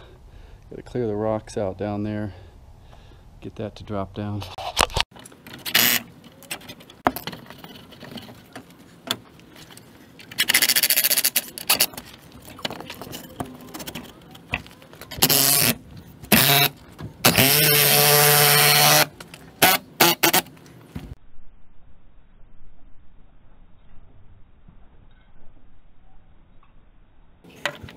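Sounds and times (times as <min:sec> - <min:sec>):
power drill driving screw into wood: 0:15.2 - 0:20.5.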